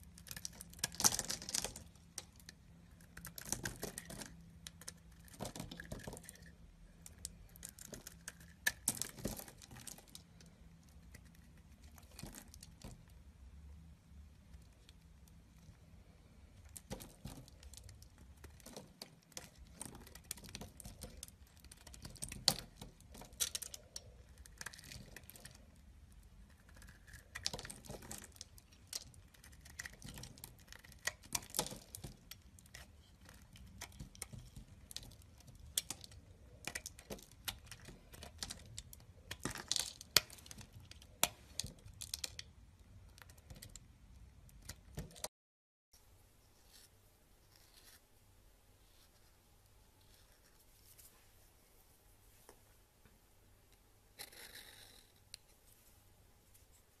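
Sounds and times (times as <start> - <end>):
knife carving soap: 0.0 - 13.1, 14.4 - 45.3, 54.1 - 55.6.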